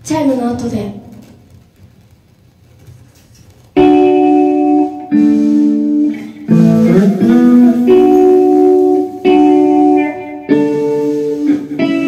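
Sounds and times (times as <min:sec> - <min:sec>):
electric guitar chords: 0:03.7 - 0:12.0.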